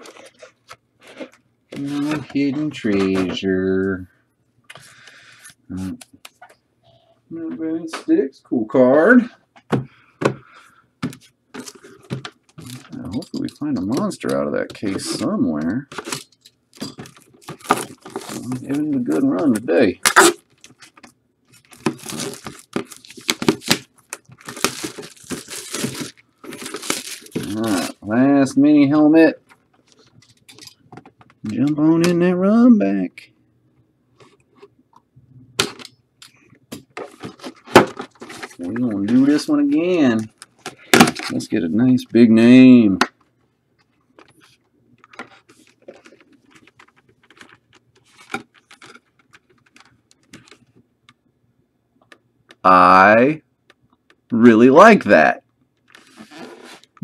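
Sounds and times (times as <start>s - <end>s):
plastic packaging crinkling and tearing: 11.6s - 14.2s, 15.9s - 28.2s, 45.1s - 50.7s, 55.9s - 57.0s.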